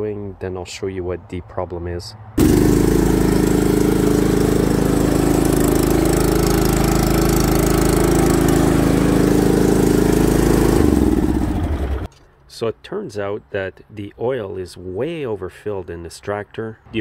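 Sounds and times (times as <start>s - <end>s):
lawn tractor engine running: 2.4s - 12.1s.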